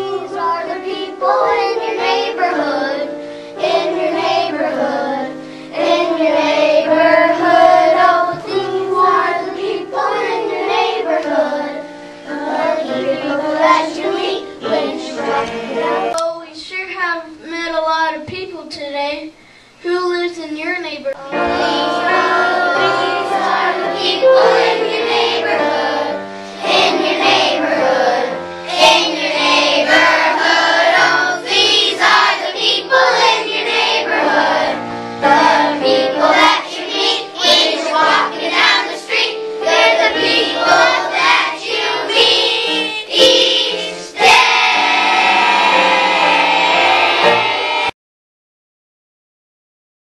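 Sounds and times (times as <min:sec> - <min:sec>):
children singing in unison: 0:00.0 - 0:16.2, 0:21.2 - 0:47.9
musical accompaniment with bass: 0:33.2 - 0:47.9.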